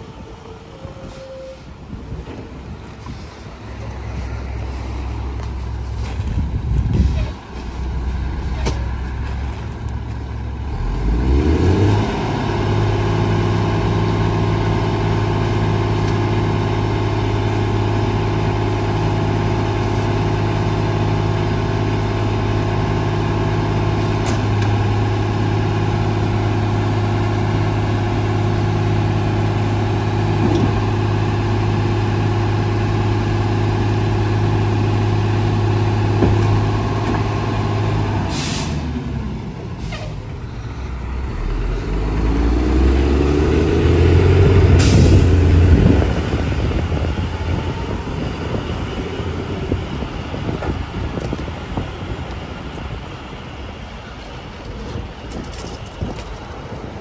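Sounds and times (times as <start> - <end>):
garbage truck engine revving: 6.0 - 52.2.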